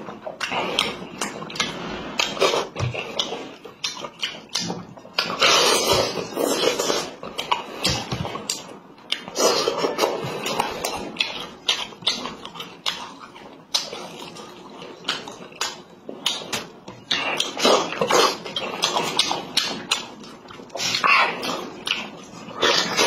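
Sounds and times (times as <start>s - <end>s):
man chewing with wet smacks: 0.0s - 23.0s.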